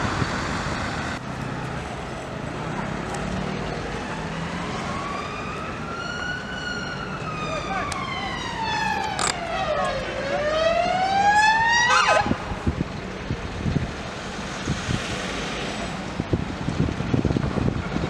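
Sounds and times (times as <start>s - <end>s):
vehicle noise: 0.0s - 18.0s
police siren wailing: 3.8s - 12.6s
wind on the microphone: 12.1s - 15.3s, 16.0s - 18.0s.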